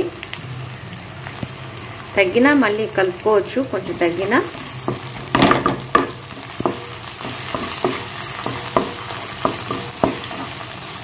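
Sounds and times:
oil sizzling: 0.0 - 11.0
spatula scraping a pan: 4.9 - 10.7.

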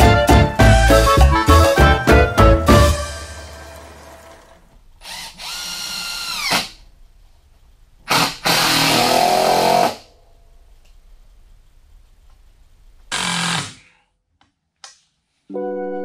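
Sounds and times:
power drill running: 3.2 - 6.8, 8.1 - 10.0, 13.1 - 13.8.

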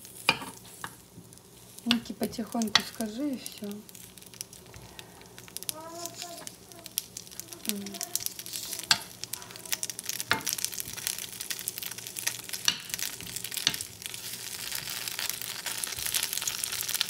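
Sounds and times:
dumplings sizzling in a pan: 0.0 - 17.0
metal spoon knocking a pan: 2.7 - 3.0.

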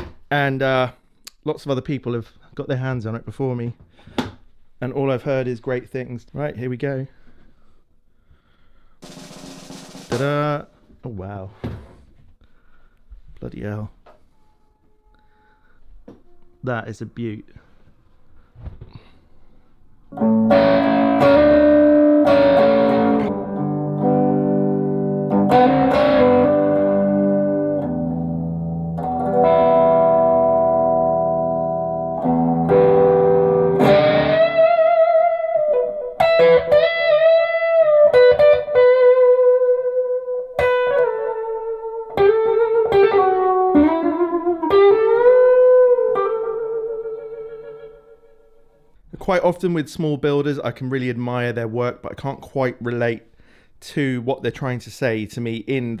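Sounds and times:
electric guitar chords: 20.1 - 48.8
electric guitar lead lines: 20.1 - 48.8.

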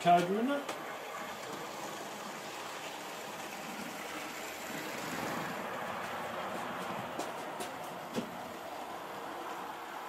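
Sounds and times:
model train motor whirring: 0.0 - 6.6
wheels on rails: 0.0 - 10.0.

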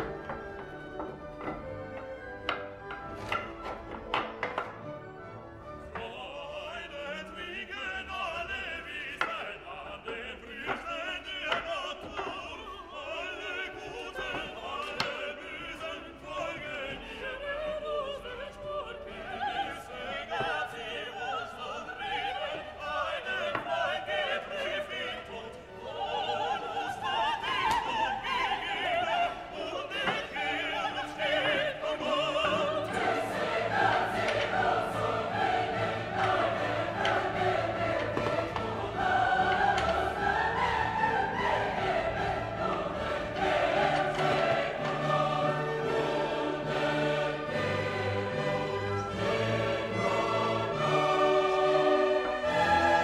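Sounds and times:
wooden parts knocking: 0.0 - 4.9, 9.2 - 12.6, 29.9 - 30.5, 31.2 - 40.6
operatic choir with orchestra: 0.0 - 53.0.

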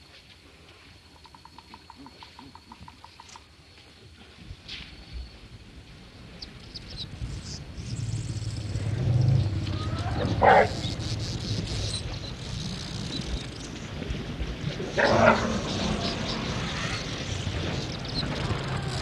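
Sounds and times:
elephants calling: 8.3 - 13.2, 14.8 - 19.0.

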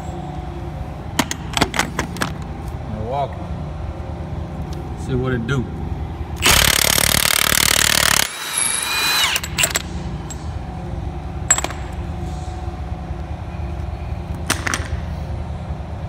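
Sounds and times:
impact wrench hammering: 6.4 - 10.4
impact wrench spinning whine: 6.4 - 10.6.

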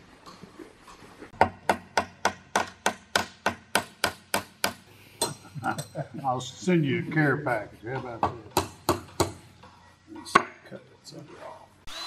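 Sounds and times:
hammer tapping metal: 8.2 - 9.5.

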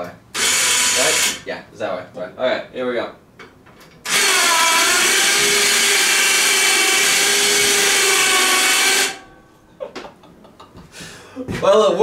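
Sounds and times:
electric winch motor whining: 0.4 - 1.4, 4.0 - 9.3.

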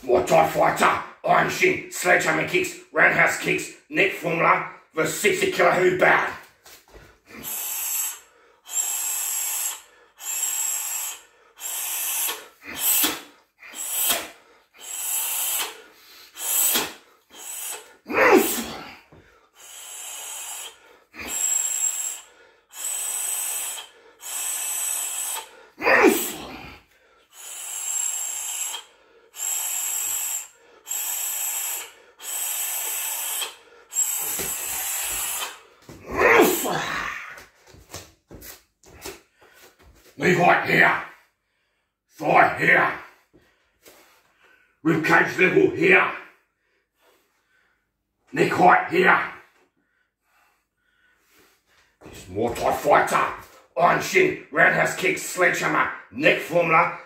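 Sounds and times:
hissing exhalations through teeth: 7.3 - 36.9
grunted exhalations: 16.7 - 19.1, 25.8 - 26.8, 34.2 - 37.4.

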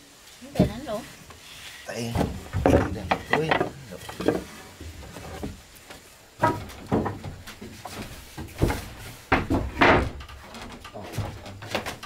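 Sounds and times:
wooden boards knocking on floor: 2.1 - 5.6, 6.4 - 12.0.

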